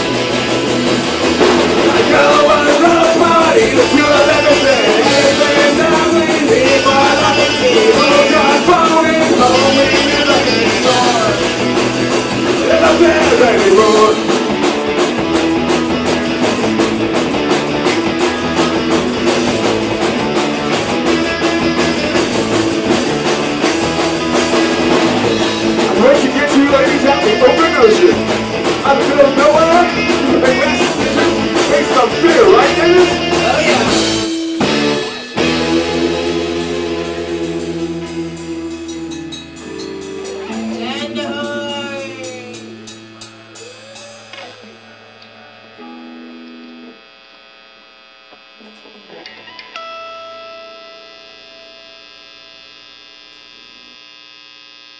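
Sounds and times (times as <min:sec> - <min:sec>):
punk rock band playing: 0:00.0 - 0:45.2
person singing: 0:01.8 - 0:14.5, 0:25.7 - 0:34.6, 0:39.7 - 0:45.6.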